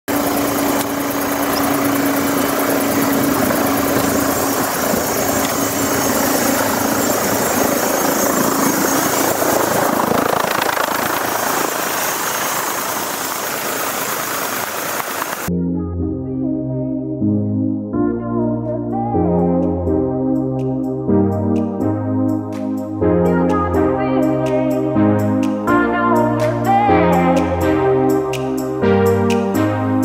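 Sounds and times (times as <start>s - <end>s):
helicopter rotor and engine: 0.1s - 15.5s
low hum: 0.1s - 16.1s.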